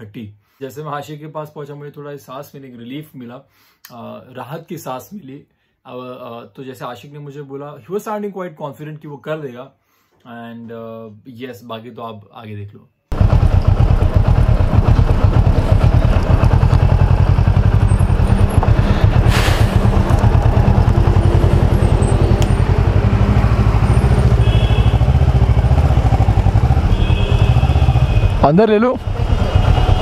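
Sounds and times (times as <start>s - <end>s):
motorcycle engine idling: 13.1s - 28.4s, 29.0s - 30.0s
brief hiss: 19.2s - 19.9s.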